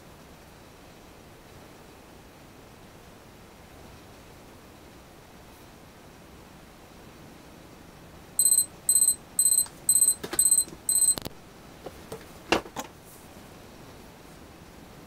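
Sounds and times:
kitchen timer beeping: 0:08.4 - 0:11.3
timer handling clicks and knocks: 0:08.4 - 0:11.3.

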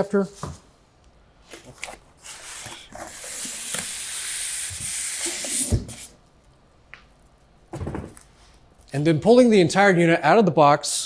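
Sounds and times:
packaging rustling and sliding: 0:01.4 - 0:06.2.

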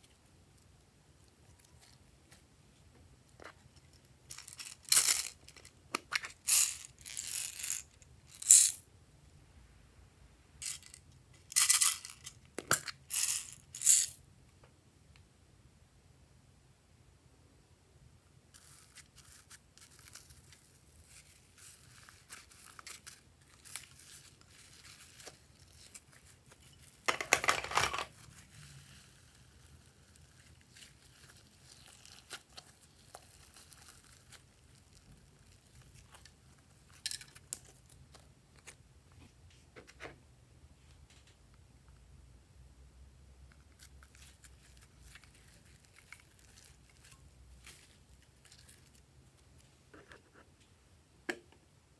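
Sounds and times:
slime tearing rustle: 0:28.1 - 0:37.0, 0:43.7 - 0:49.5.

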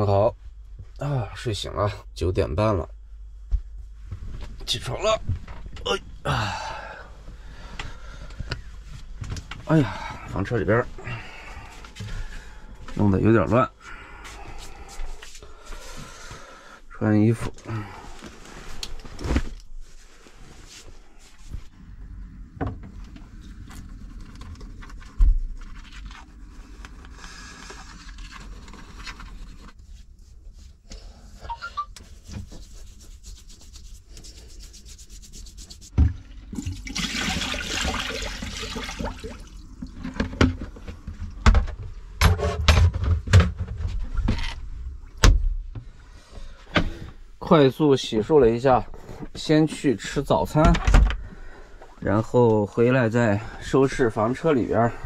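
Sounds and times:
fabric rustling: 0:32.0 - 0:36.0.

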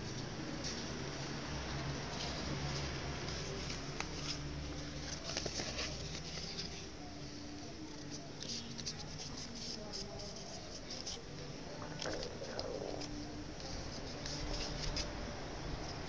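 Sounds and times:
steady low hum: 0:00.0 - 0:16.0
paper rustling and crinkling: 0:02.2 - 0:15.3.

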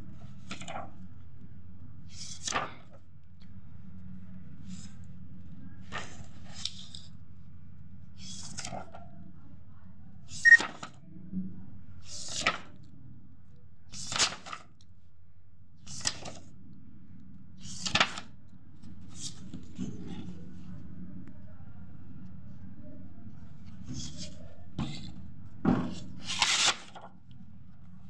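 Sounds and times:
low steady hum: 0:00.0 - 0:13.9, 0:14.7 - 0:28.0
paper rustling and flapping: 0:00.2 - 0:01.0, 0:02.2 - 0:03.1, 0:05.8 - 0:07.1, 0:10.6 - 0:11.0, 0:12.1 - 0:12.8, 0:14.0 - 0:14.8, 0:15.9 - 0:16.5, 0:17.6 - 0:18.3, 0:25.8 - 0:27.2.

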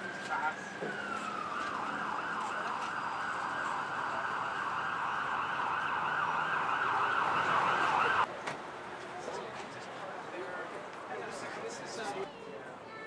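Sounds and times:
emergency vehicle siren: 0:00.0 - 0:08.3.

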